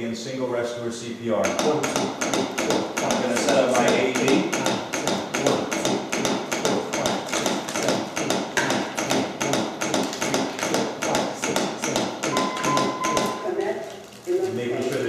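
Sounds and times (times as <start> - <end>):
manikin clicking under compressions: 1.4 - 13.7.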